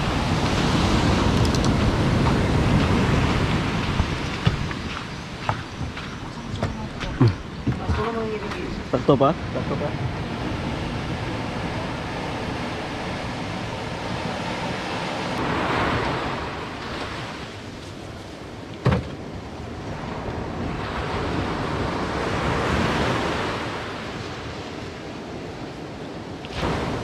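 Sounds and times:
surf breaking on beach: 0.0s - 5.5s, 8.3s - 18.6s, 26.4s - 27.0s.

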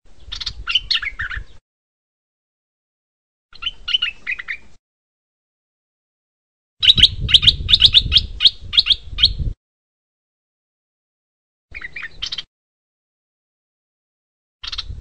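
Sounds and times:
bird calling sharp notes: 3.5s - 4.8s, 6.8s - 9.4s, 11.7s - 12.5s, 14.6s - 15.0s.

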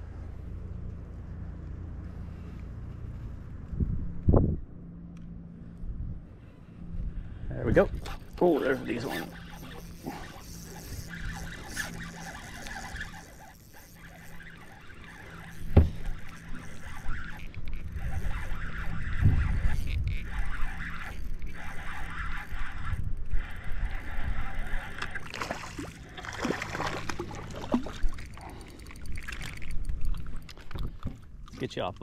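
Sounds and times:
water sloshing against boat hull: 8.0s - 19.2s, 24.8s - 31.7s
fish splashing: 9.1s - 19.2s, 20.2s - 30.7s.

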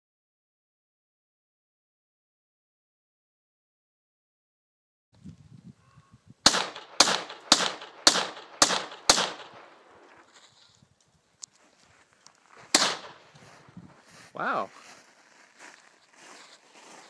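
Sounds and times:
rifle shots: 6.4s - 10.2s, 12.7s - 13.4s.

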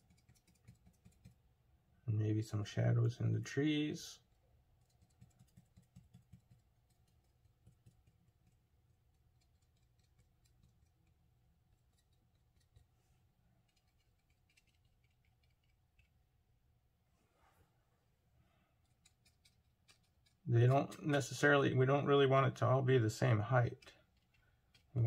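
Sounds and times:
brush tapping on paper: 0.0s - 1.4s, 4.8s - 11.2s.

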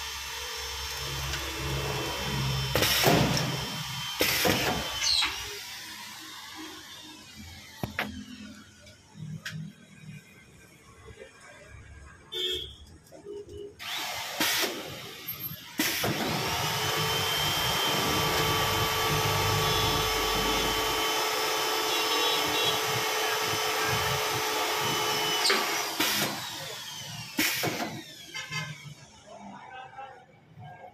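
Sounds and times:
machine running with whine: 0.0s - 10.8s, 13.8s - 27.4s.

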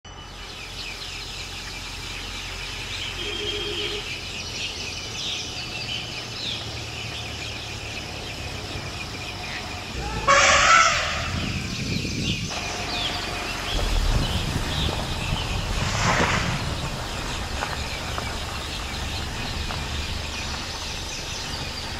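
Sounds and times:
birds chirping: 0.1s - 21.9s
insects calling: 0.1s - 21.9s
steady low hum: 0.1s - 21.9s.

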